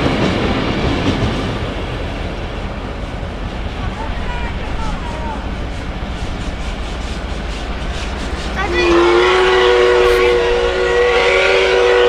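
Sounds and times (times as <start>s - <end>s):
train running noise: 0.0s - 12.0s
steam locomotive whistle: 8.4s - 12.0s.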